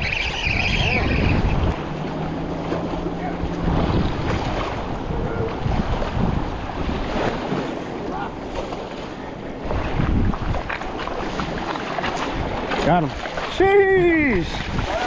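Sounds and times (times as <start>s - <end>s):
small waves lapping: 0.0s - 15.0s
wind buffeting microphone: 0.0s - 15.0s.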